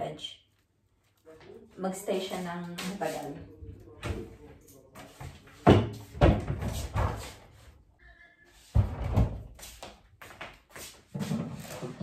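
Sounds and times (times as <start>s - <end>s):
fridge knocks and thumps: 5.6s - 7.2s.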